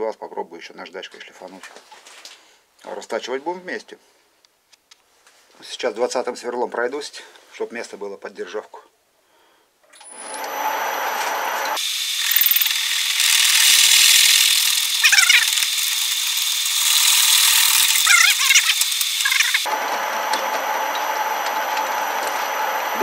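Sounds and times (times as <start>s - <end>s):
drill squeals: 10.0s - 19.7s
drill cutting metal with whine: 10.0s - 23.0s
lathe running: 10.0s - 23.0s.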